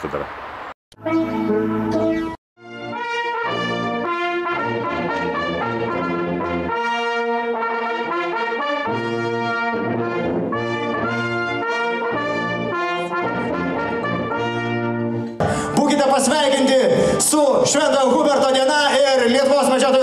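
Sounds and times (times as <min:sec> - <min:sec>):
brass band playing chords: 0:01.0 - 0:16.1.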